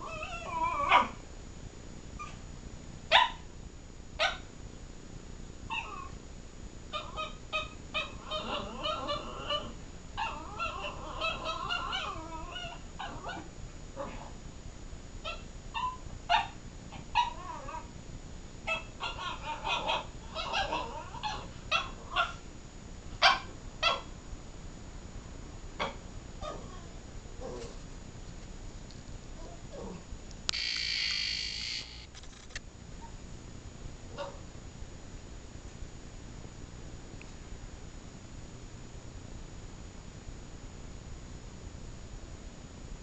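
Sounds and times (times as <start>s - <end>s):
dog whining vocalizations: 0.0s - 1.2s, 5.7s - 6.2s, 6.9s - 14.3s, 18.7s - 22.4s
dog yipping: 0.0s - 1.2s, 3.1s - 3.4s, 4.2s - 4.5s, 5.7s - 6.1s, 6.9s - 13.5s, 15.2s - 17.7s, 18.7s - 22.4s, 23.2s - 24.1s.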